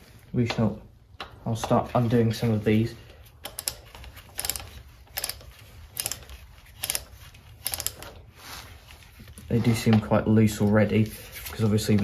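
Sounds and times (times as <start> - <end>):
socket ratchet clicking: 3.4 - 8.1.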